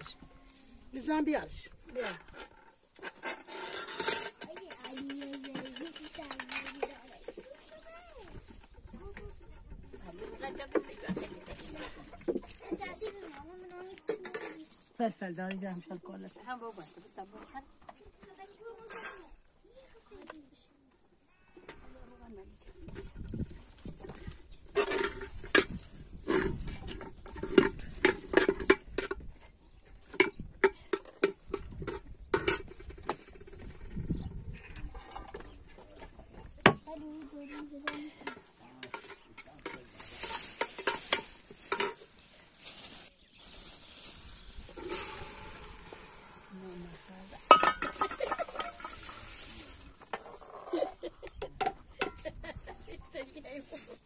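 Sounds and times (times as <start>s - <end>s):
utensils knocking on a metal pot: 47.4s - 49.0s.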